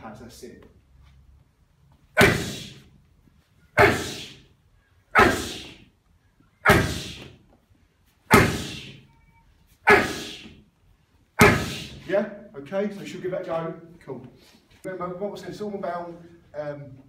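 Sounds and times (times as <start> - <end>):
punches smacking a mitt: 2.2 - 2.7, 6.7 - 7.4, 8.3 - 8.9, 11.4 - 11.9.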